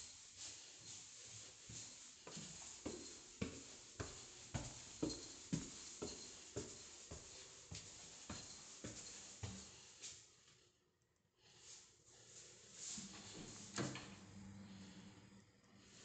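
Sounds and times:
footsteps climbing stairs: 0:01.7 - 0:09.8.

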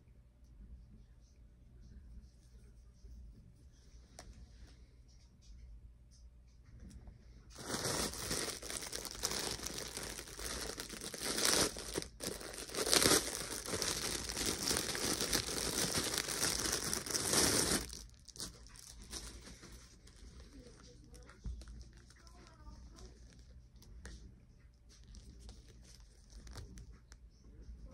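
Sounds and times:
plastic wrapping crinkling: 0:07.5 - 0:23.4, 0:25.1 - 0:26.8.

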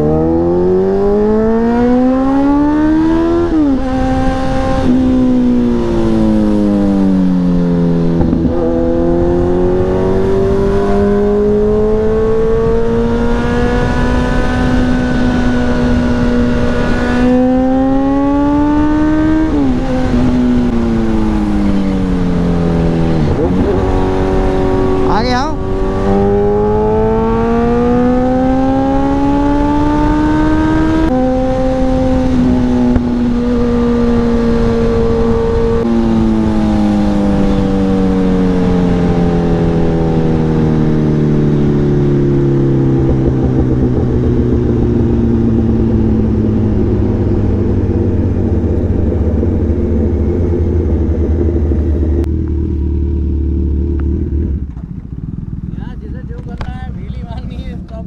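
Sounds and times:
sport motorcycle engine: 0:00.0 - 0:58.0.

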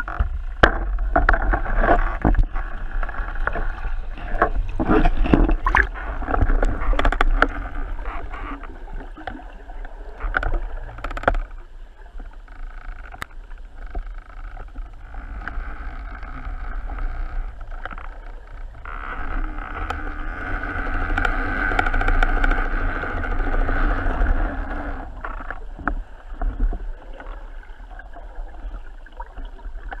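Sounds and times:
sharp clicks and knocks: 0:00.0 - 0:03.6, 0:04.4 - 0:07.7
muffled underwater rush: 0:00.0 - 0:12.6, 0:19.4 - 0:30.0.

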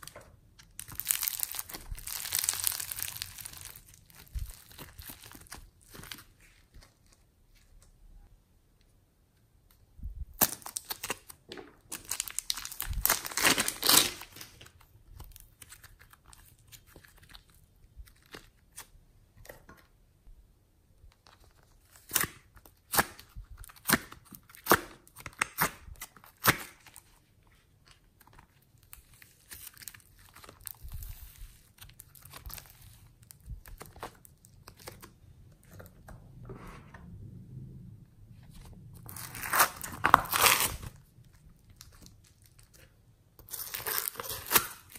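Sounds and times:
plastic bag crinkling: 0:00.0 - 0:06.6, 0:11.8 - 0:14.8.

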